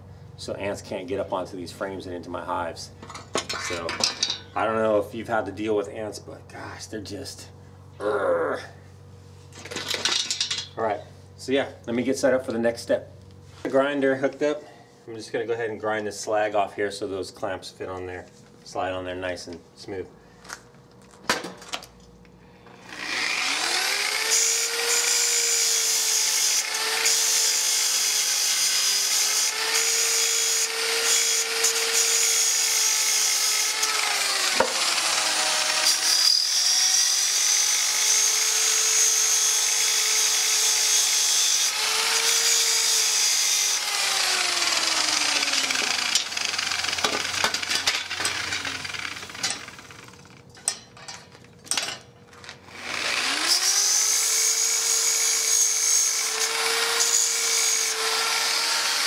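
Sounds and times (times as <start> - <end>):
angle grinder grinding steel: 22.7 - 50.9, 52.6 - 59.0.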